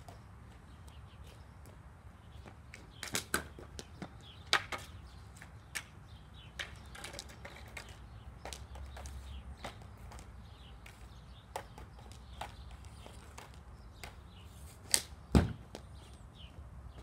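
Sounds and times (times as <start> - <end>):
hockey stick clacking on puck: 6.6 - 14.2.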